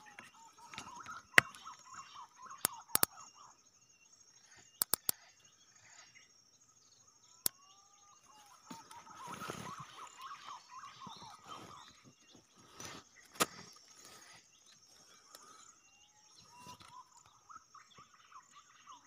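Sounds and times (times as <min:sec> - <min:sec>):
birds chirping: 0:00.0 - 0:19.0
sharp clicks: 0:02.6 - 0:03.2, 0:04.7 - 0:05.2.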